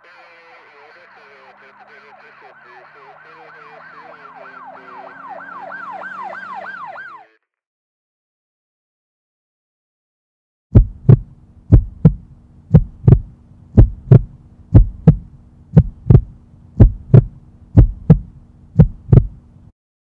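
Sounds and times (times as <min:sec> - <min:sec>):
heartbeat double thumps: 0:10.7 - 0:19.4
faint low hum: 0:10.8 - 0:19.7.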